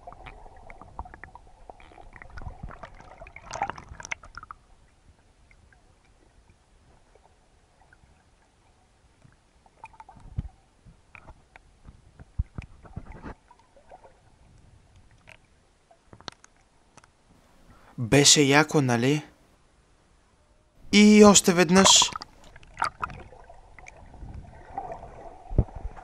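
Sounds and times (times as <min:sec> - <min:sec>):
faint underwater water movement: 0:00.0 - 0:19.6, 0:20.8 - 0:26.0.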